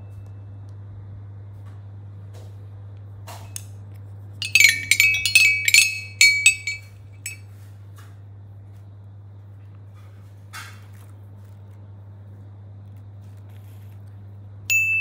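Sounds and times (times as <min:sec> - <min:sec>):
toy xylophone notes: 0:04.4 - 0:07.4.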